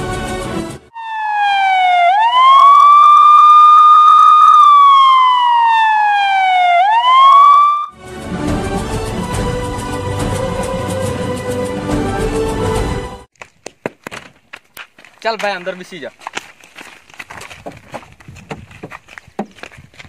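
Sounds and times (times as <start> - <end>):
police siren wailing: 0.9 - 8.0
background music: 8.0 - 13.3.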